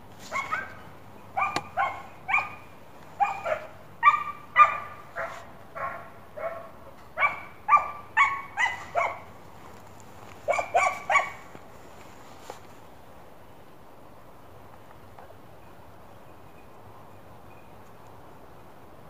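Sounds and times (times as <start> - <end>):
hound baying: 1.4 - 9.3, 10.5 - 11.4.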